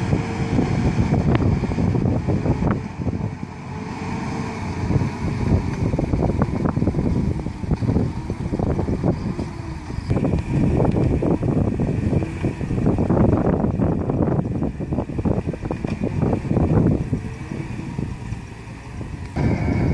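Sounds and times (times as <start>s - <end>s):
heavy truck engine: 0.0s - 19.9s
wind noise on microphone: 0.0s - 19.9s.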